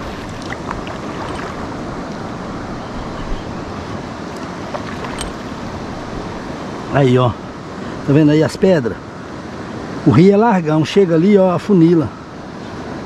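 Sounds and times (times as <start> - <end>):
river water rushing past rocks: 0.0 - 8.2.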